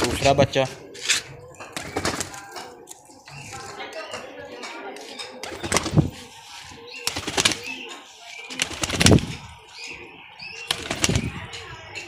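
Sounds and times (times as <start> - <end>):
pigeon wings flapping: 1.8 - 2.5, 5.4 - 6.2, 7.0 - 7.8, 8.5 - 9.3, 10.7 - 11.3.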